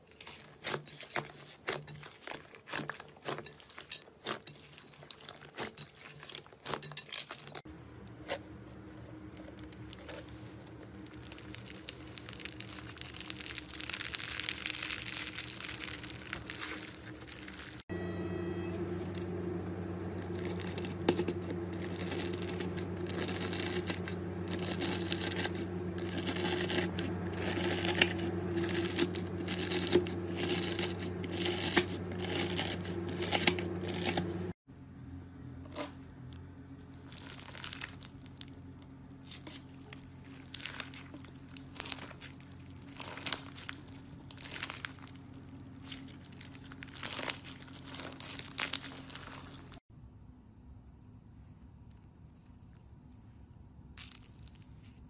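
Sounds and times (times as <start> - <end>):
steady low hum: 7.7 - 37.0
slime crackling and tearing: 8.2 - 17.8, 20.1 - 34.6, 37.0 - 49.8, 54.0 - 55.0
slime squeezed by hands: 9.4 - 17.8.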